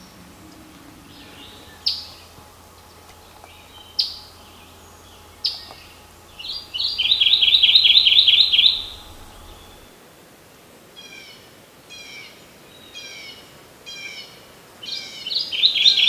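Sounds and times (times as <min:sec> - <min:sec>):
warbler song: 0:00.0 - 0:10.0.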